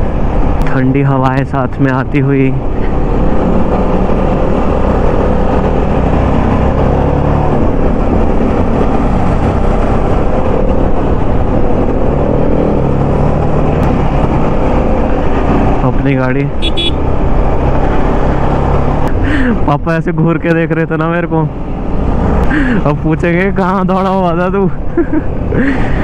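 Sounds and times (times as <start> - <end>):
wind noise on microphone: 2.6 - 15.8
motorcycle engine cruising: 2.6 - 19.8, 21.0 - 26.0.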